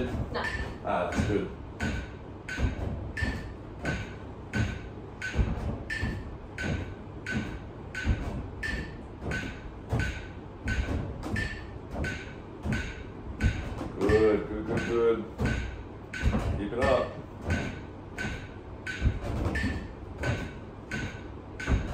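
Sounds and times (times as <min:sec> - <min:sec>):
footsteps thudding on chair: 0:00.0 - 0:21.9
metronome beeping: 0:00.4 - 0:01.4.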